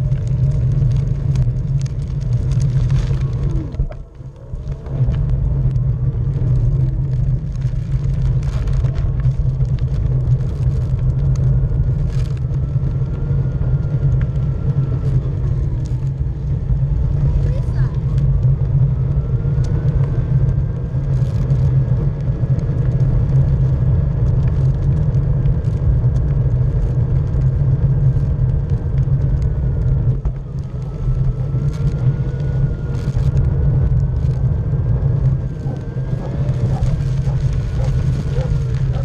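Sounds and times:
tyre rumble on path: 29.8 - 39.0.

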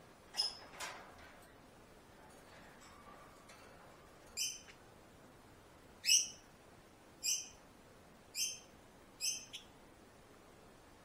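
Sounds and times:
budgerigar calls: 9.2 - 9.7.

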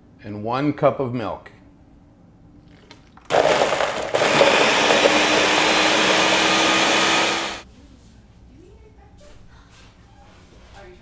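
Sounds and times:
blender churning: 3.3 - 7.6.

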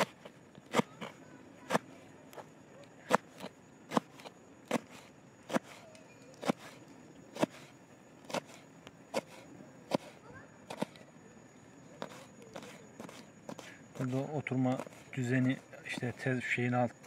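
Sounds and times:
knife chopping on cutting board: 6.4 - 7.6, 8.3 - 10.9.

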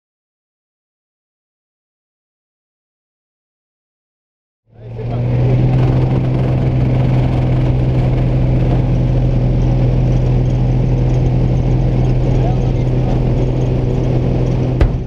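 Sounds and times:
propeller plane engine drone: 4.7 - 15.0.

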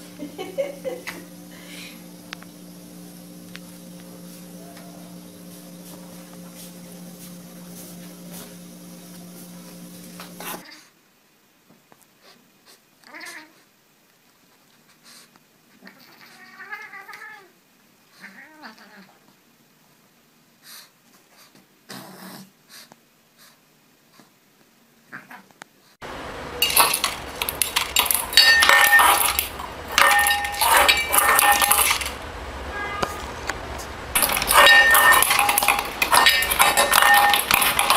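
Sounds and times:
cat pawing bowl clattering: 26.6 - 32.2, 34.2 - 37.9.

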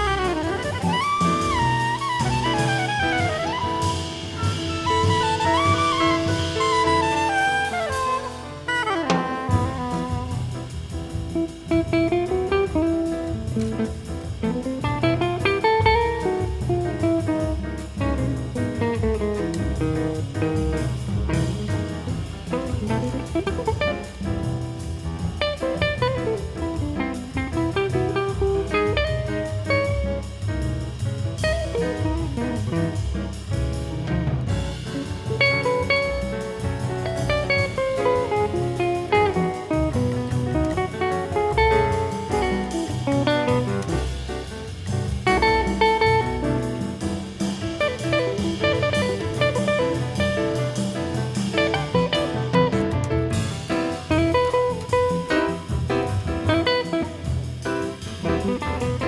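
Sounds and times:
low bass line: 0.0 - 59.0
steady beat: 0.0 - 59.0
plucked guitar melody: 11.9 - 17.6, 22.7 - 24.2, 25.7 - 30.3, 35.3 - 44.2, 45.2 - 47.0, 47.8 - 55.7.

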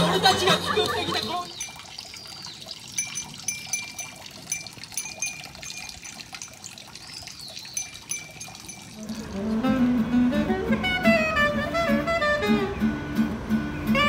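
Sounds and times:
water trickling into stone basin: 0.0 - 10.1
guitar music: 9.2 - 14.0.

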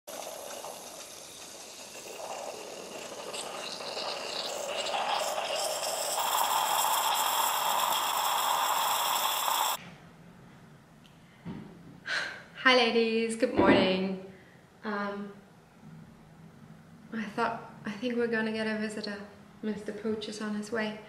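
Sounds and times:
coffee machine pump whine: 0.1 - 9.8
liquid flowing into mug: 0.1 - 9.8.

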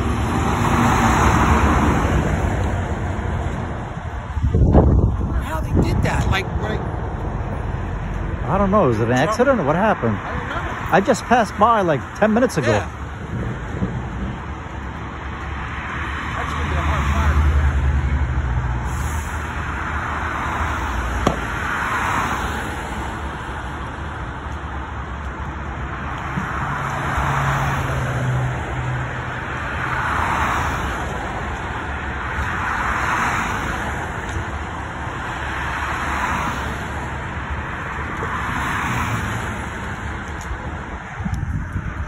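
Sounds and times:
highway traffic rushing: 0.0 - 42.0
sharp crack: 21.2 - 21.9.

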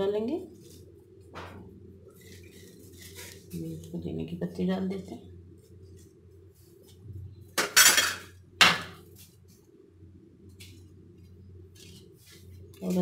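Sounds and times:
metal utensils clattering on jar: 7.6 - 8.3.

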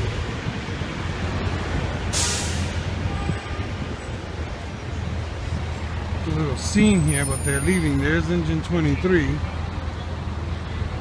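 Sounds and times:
diesel engine rumbling: 0.0 - 11.0
air brake hiss: 2.1 - 2.8.

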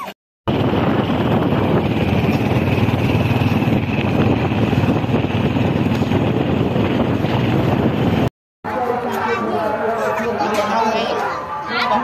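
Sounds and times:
vehicle engine and road rumble: 0.0 - 8.3.

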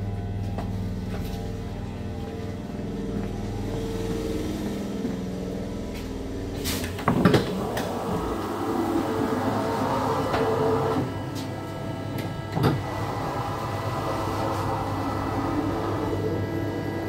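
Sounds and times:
train electrical hum: 0.0 - 17.0.

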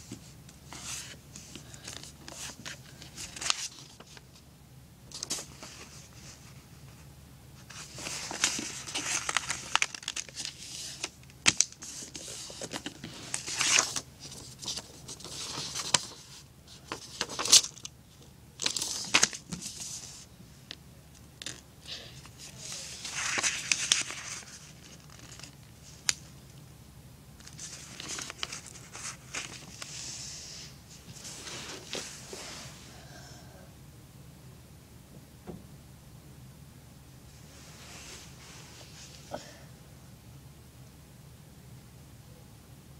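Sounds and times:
paper rustling and crinkling: 0.0 - 4.4, 5.1 - 6.7, 7.6 - 18.0, 18.6 - 20.3, 22.2 - 26.4, 27.4 - 32.7.

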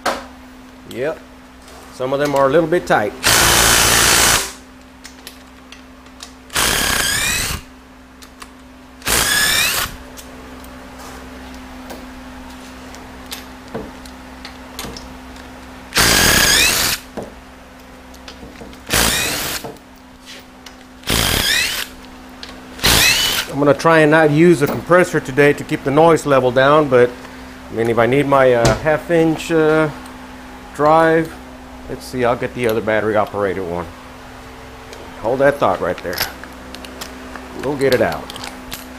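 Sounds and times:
cordless power tool spinning: 3.2 - 4.6, 6.5 - 7.7, 9.0 - 10.0, 15.9 - 17.1, 18.8 - 19.6, 21.0 - 22.0, 22.8 - 23.5.

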